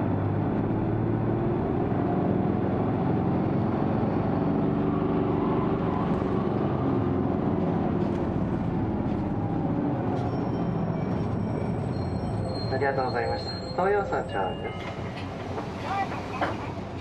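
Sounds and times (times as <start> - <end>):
bus diesel engine running: 0.0 - 17.0.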